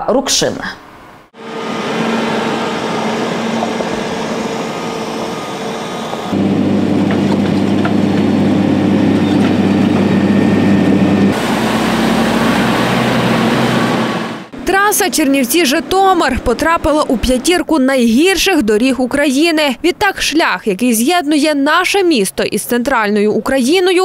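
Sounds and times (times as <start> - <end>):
tanker truck spraying water: 1.4 - 14.5
heavy truck diesel engine: 1.4 - 14.6
motor grader deep drone: 1.4 - 14.6.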